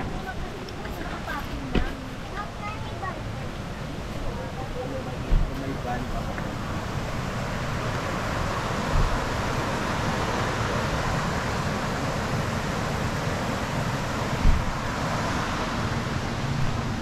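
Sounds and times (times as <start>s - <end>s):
steady rushing noise: 0.0s - 17.0s
low thumps: 14.4s - 14.8s.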